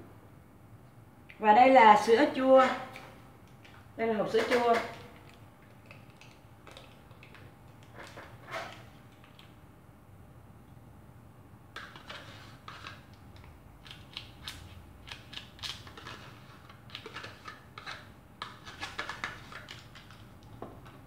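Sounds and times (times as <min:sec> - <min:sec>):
spoon scraping plastic tub: 0:04.2 - 0:05.4, 0:06.0 - 0:09.0, 0:11.8 - 0:13.1, 0:15.8 - 0:19.9.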